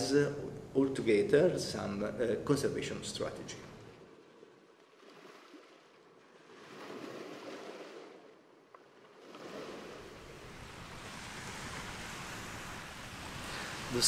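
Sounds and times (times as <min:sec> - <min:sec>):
sea surf breaking on shore: 0:09.2 - 0:14.0.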